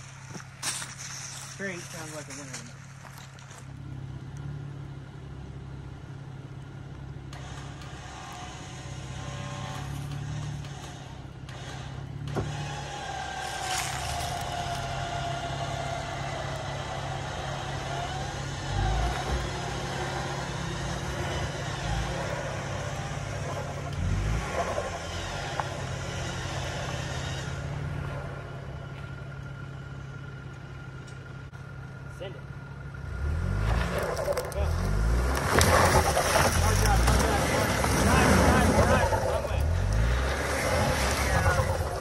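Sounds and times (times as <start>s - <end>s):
engine idling: 0.0s - 42.0s
electric winch whining: 7.3s - 30.0s.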